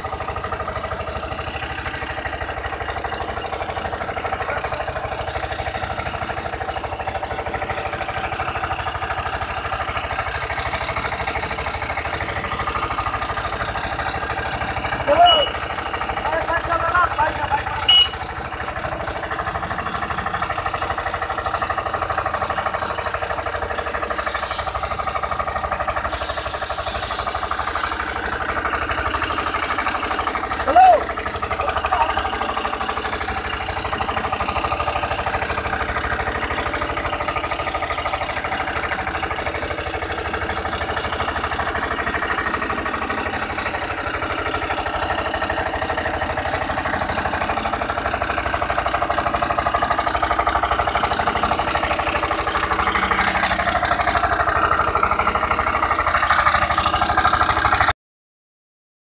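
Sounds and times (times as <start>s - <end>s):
compressor engine running: 0.0s - 57.9s
spray hiss: 24.0s - 25.2s, 26.0s - 28.0s.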